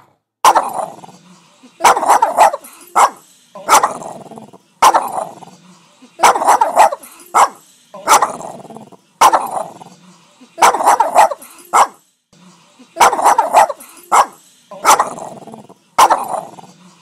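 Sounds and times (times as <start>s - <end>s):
dog barking: 0.0s - 1.0s, 1.8s - 4.2s, 4.8s - 5.4s, 6.2s - 8.6s, 9.2s - 9.8s, 10.6s - 12.0s, 13.0s - 15.4s, 16.0s - 16.7s.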